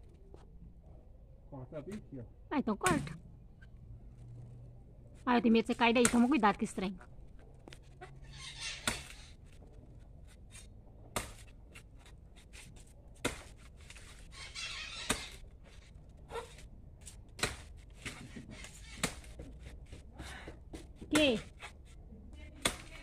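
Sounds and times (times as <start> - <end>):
chickens calling: 14.2 - 15.5.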